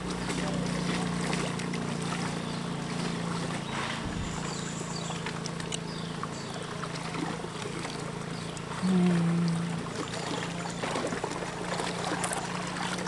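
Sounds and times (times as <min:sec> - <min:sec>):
steady low hum: 0:00.0 - 0:13.0
water rushing and lapping: 0:00.0 - 0:13.0.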